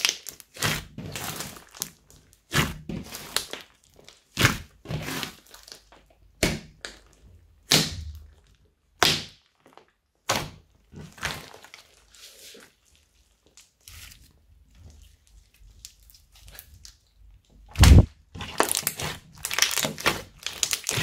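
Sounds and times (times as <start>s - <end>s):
soft slime squishing: 0.0s - 21.0s
slime squishy pops: 17.7s - 21.0s.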